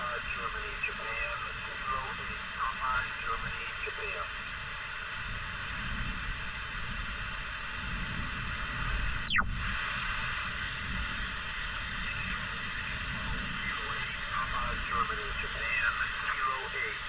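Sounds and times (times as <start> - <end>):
radio static hiss: 0.0 - 5.3, 8.6 - 17.0
whistle falling in pitch: 9.2 - 9.4.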